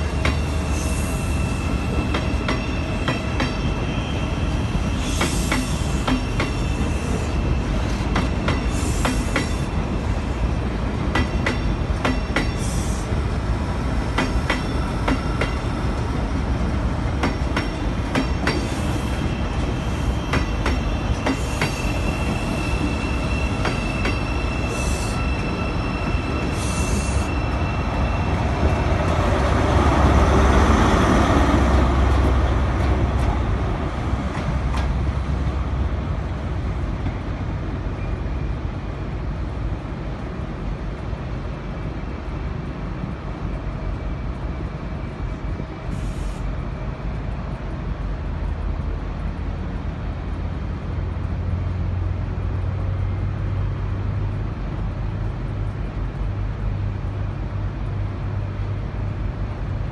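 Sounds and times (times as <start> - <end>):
train wheels clicking over rail joints: 0.0 - 3.9, 4.5 - 59.8
train wheels squealing: 0.0 - 16.6, 17.2 - 31.6, 37.0 - 38.6.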